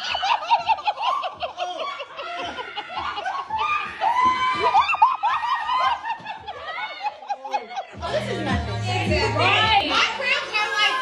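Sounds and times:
people laughing hard: 0.0s - 11.0s.

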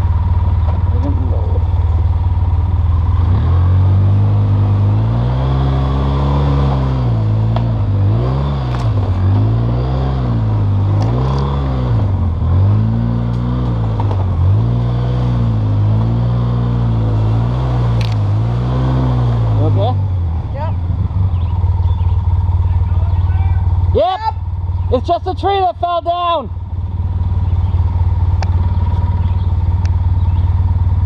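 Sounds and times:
atv engine revving: 0.0s - 31.0s
sharp knocks and clatter: 13.3s - 14.5s.

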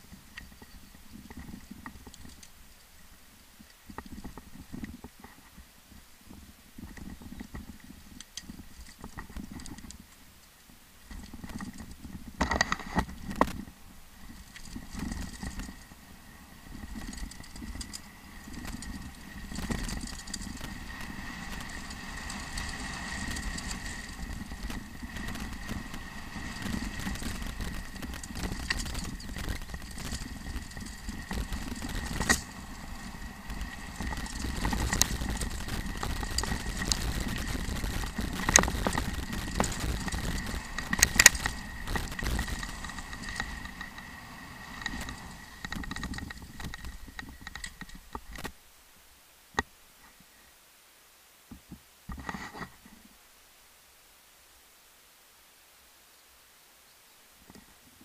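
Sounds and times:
mountain bike rattling over stones: 0.0s - 3.0s, 6.8s - 48.6s
wind rumbling on microphone: 0.0s - 48.6s.

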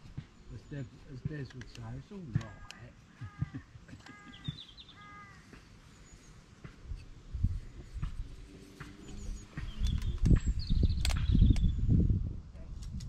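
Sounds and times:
crow cawing: 2.4s - 5.7s
small bird chirping: 4.0s - 7.1s, 8.7s - 12.0s.

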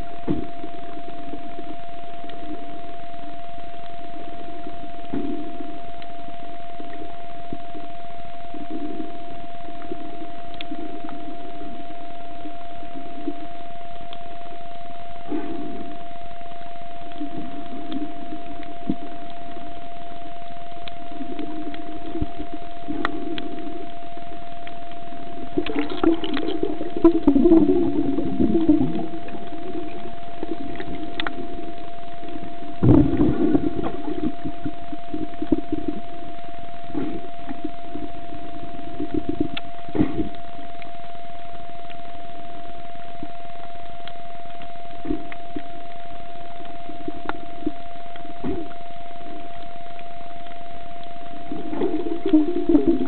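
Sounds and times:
faint clicks: 0.0s - 53.0s
faint steady hum: 0.0s - 53.0s
muffled underwater rumble: 0.0s - 53.0s
steady single-tone whine: 0.0s - 53.0s
irregular gurgling: 25.6s - 31.0s.

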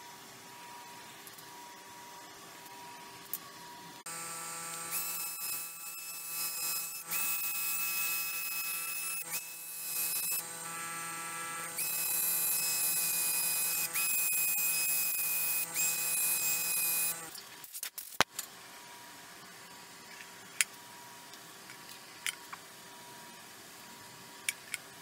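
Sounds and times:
drill whining: 4.1s - 17.4s.

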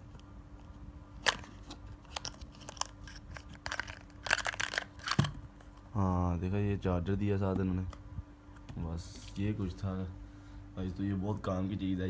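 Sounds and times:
packaging clicks and rustles: 1.2s - 5.4s.

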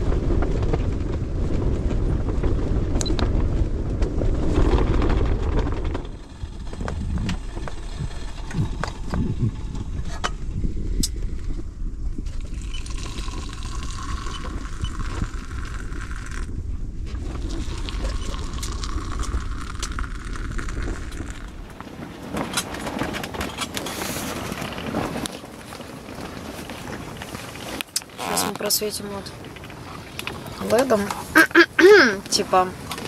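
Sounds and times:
steady low rumble: 0.0s - 23.4s
hot water poured into mugs: 12.4s - 16.5s, 17.4s - 21.5s.

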